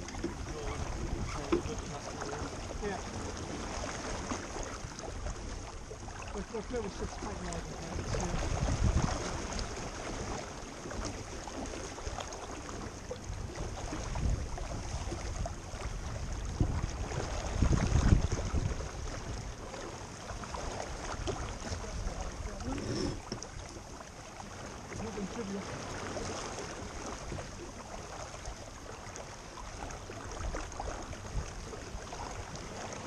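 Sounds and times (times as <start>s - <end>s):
wind buffeting microphone: 0.0s - 23.7s
water washing along boat hull: 0.0s - 33.0s.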